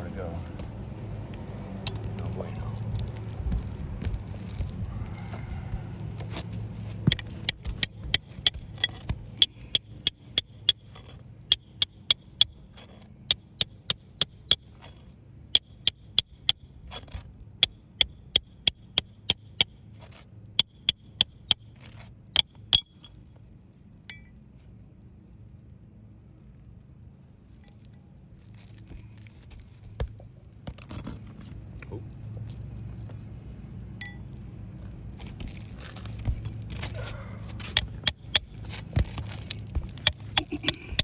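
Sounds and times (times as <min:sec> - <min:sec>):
hammer tapping steel pry bar: 0:07.0 - 0:15.0, 0:15.6 - 0:16.7, 0:17.6 - 0:19.8, 0:20.6 - 0:21.6, 0:22.4 - 0:23.1, 0:37.6 - 0:41.0.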